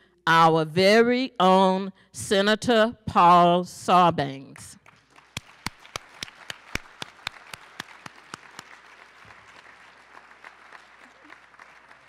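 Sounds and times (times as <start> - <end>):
audience applauding: 4.8 - 12.0
hands clapping close by: 4.8 - 12.0.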